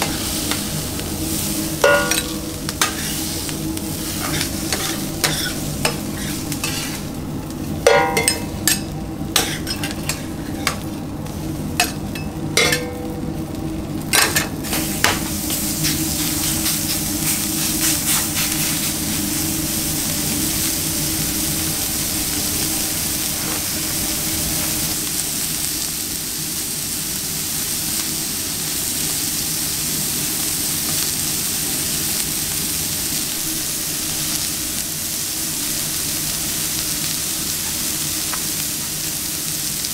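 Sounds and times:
burger patties sizzling on grill: 0:00.0 - 0:39.9
metal spatula scraping griddle: 0:01.8 - 0:07.2, 0:07.9 - 0:10.9.

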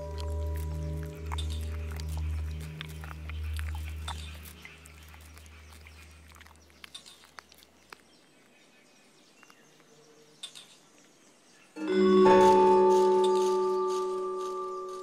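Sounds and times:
low music drone: 0:00.0 - 0:05.2, 0:11.8 - 0:15.0
insect chewing crunches: 0:00.0 - 0:10.6, 0:12.5 - 0:15.0.

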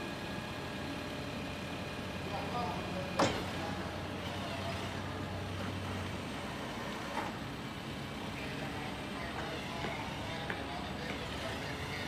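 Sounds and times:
diesel engine running: 0:00.0 - 0:12.0.

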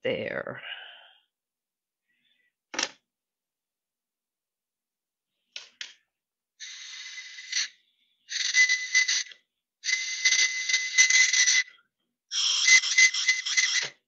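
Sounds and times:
breathy clay whistle blowing: 0:06.6 - 0:14.0.

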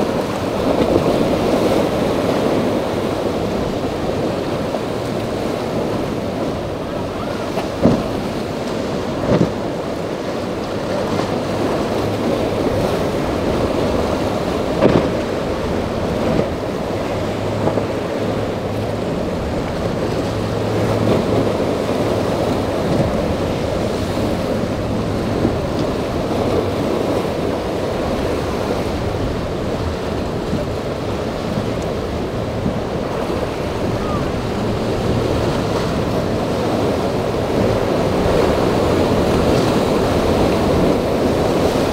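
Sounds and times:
breaking waves: 0:00.0 - 0:41.9
outboard engines humming: 0:00.0 - 0:41.9
wind buffeting microphone: 0:00.0 - 0:41.9.

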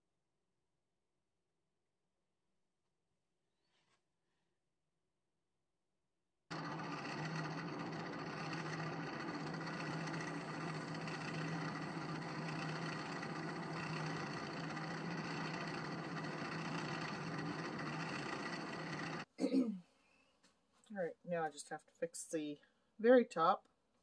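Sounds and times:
wood lathe motor hum: 0:06.5 - 0:19.3.

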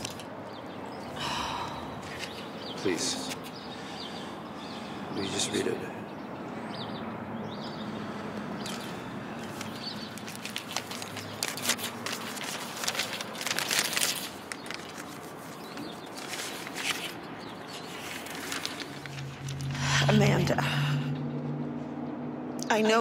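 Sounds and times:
paper rustling and crinkling: 0:00.0 - 0:00.3, 0:08.7 - 0:19.8
outdoor background noise: 0:00.0 - 0:23.0.

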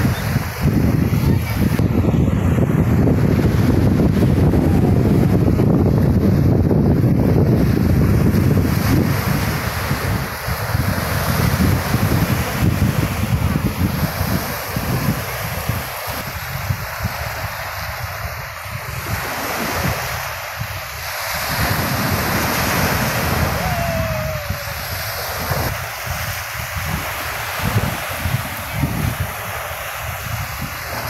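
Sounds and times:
wind buffeting microphone: 0:00.0 - 0:31.0
small waves breaking: 0:07.5 - 0:31.0.

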